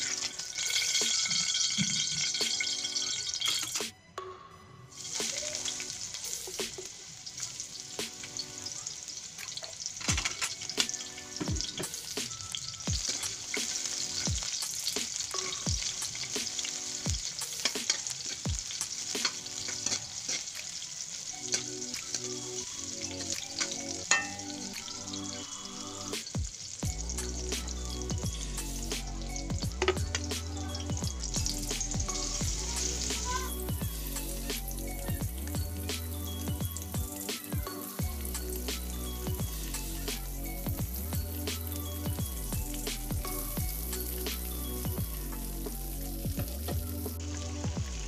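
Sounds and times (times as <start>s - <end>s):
onion rings sizzling in hot oil: 0.0s - 3.9s, 4.9s - 48.0s.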